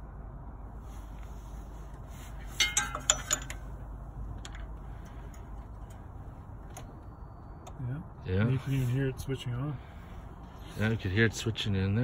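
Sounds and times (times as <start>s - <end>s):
low steady hum: 0.0s - 12.0s
sharp metallic clinks: 2.5s - 3.8s.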